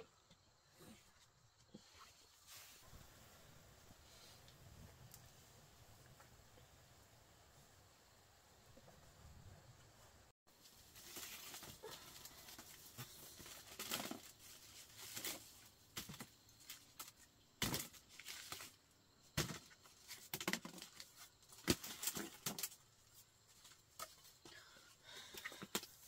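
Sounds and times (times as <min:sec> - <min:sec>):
wicker rustling and scraping: 0:10.5 - 0:18.8.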